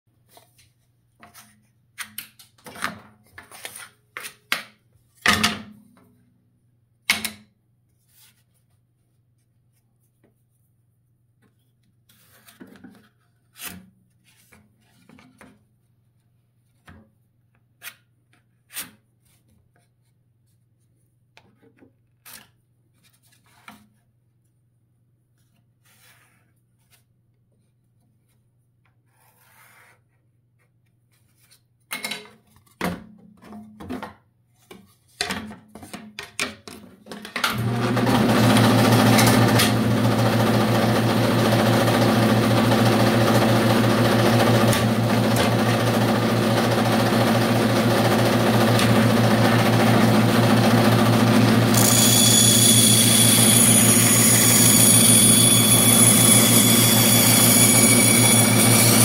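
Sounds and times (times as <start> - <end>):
pencil scratching: 25.8 - 26.6, 29.0 - 30.2
bandsaw motor humming: 37.5 - 59.0.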